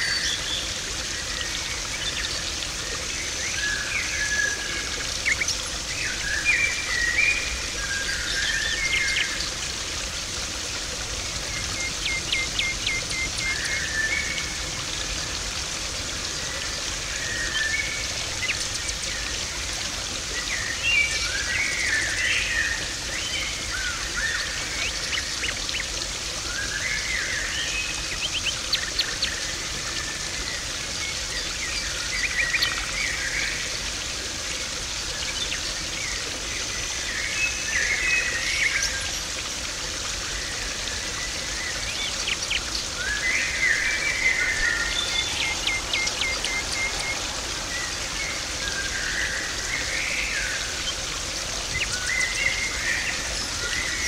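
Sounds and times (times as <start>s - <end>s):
water rushing and splashing: 0.0s - 54.0s
birds chirping: 41.2s - 54.0s.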